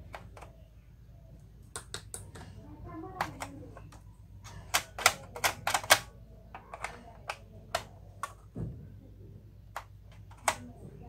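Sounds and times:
plastic clicks and taps: 1.7 - 2.5, 3.2 - 8.6, 9.7 - 10.7.

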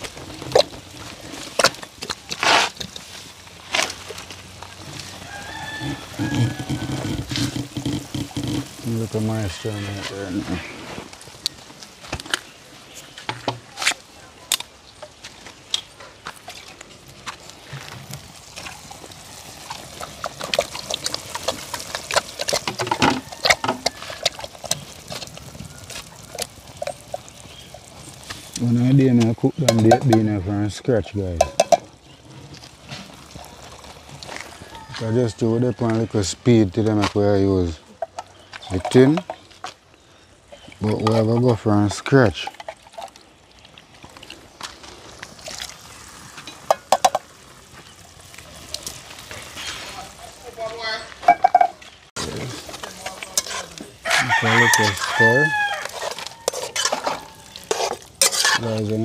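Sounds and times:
wet food squelching: 0.0 - 30.3, 31.0 - 35.1, 42.4 - 59.0
yard background noise: 0.0 - 59.0
chickens clucking and squawking: 4.8 - 11.0, 51.2 - 58.0
spoon scraping in a pot: 52.4 - 59.0.

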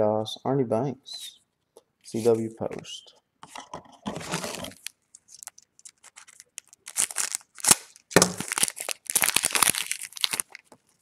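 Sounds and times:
foil wrapper crinkling and tearing: 4.2 - 11.0.

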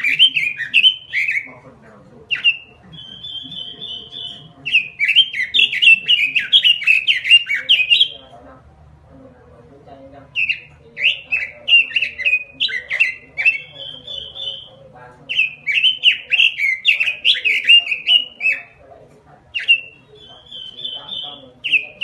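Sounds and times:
bird singing warbling phrases: 0.0 - 8.5, 9.9 - 22.0.

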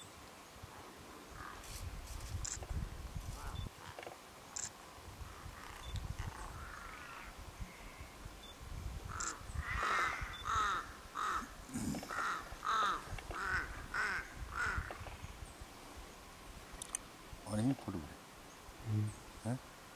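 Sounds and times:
crow cawing: 6.6 - 8.0, 9.1 - 11.5, 12.1 - 14.9.

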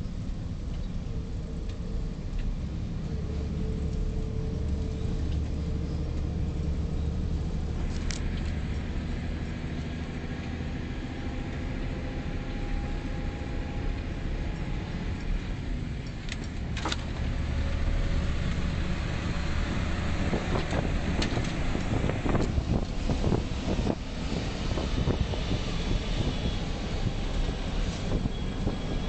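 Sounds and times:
truck diesel engine drone: 0.0 - 29.0.

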